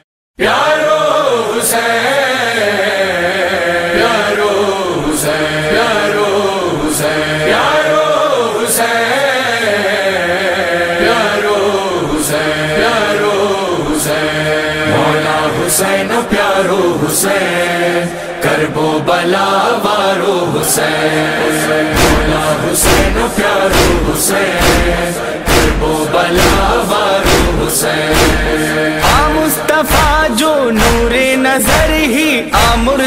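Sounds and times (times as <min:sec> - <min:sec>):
men chanting a lament: 0:00.4 - 0:33.0
chest-beating slaps: 0:21.9 - 0:33.0.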